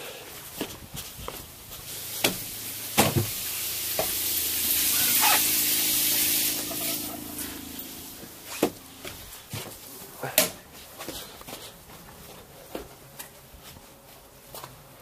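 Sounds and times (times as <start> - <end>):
electric water pump humming: 0.4 - 10.2
shower water spraying: 0.9 - 9.5.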